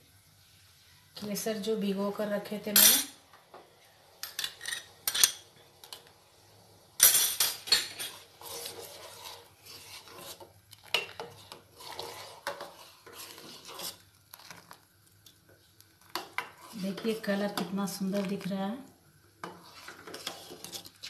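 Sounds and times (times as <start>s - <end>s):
metal ladle scraping a pan: 7.6s - 14.8s, 16.0s - 18.5s, 19.4s - 21.0s.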